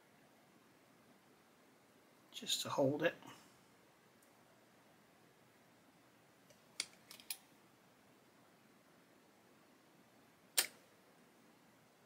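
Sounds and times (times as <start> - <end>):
plastic parts clicking and tapping: 6.5 - 7.4.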